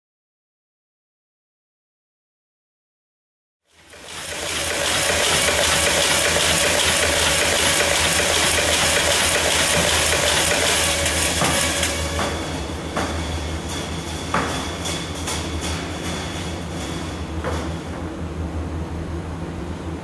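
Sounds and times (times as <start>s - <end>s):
metallic clattering machinery: 3.7s - 18.3s
machinery whine and low hum: 3.7s - 20.0s.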